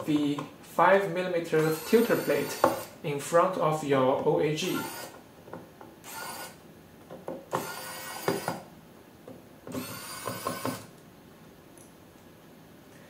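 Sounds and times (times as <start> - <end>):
electric screwdriver whirring: 1.6 - 2.9, 4.7 - 5.2, 6.0 - 6.6, 7.5 - 8.6, 9.7 - 10.9.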